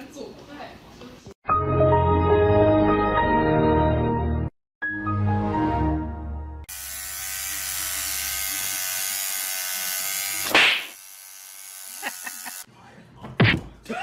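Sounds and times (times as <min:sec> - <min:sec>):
electric toothbrush buzzing: 0:06.7 - 0:12.7.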